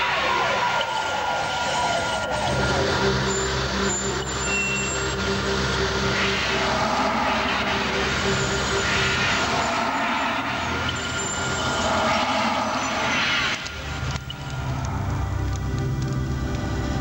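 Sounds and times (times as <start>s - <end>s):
synthetic held tones: 0.0s - 14.8s
pulsing low note: 2.4s - 15.7s.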